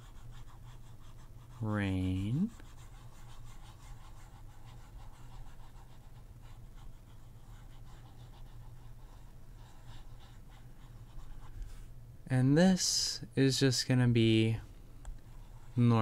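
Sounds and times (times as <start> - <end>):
stylus scratching on drawing tablet: 0.0 - 11.6, 15.2 - 16.0
low electrical hum: 0.0 - 16.0.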